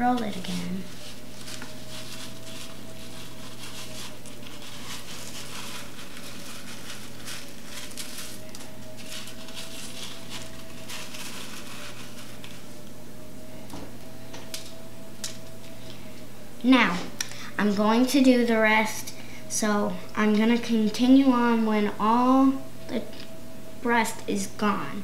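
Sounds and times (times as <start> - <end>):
background hum: 0.0 - 25.0
cornflakes crackling and crunching: 0.1 - 12.8.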